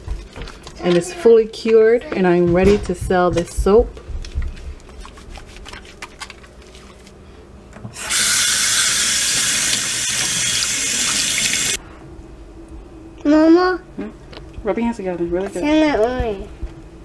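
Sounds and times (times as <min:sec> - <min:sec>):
soapy hands rubbing: 0:04.3 - 0:07.2.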